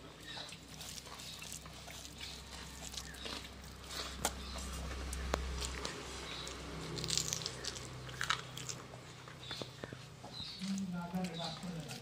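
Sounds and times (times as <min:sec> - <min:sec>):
hand squishing rice: 0:00.0 - 0:08.0.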